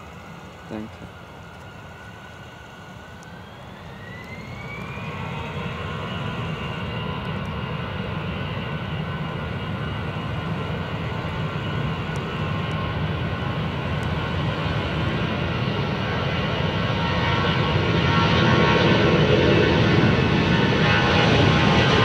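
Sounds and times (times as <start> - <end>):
jet engines spooling up: 0.0 - 22.0.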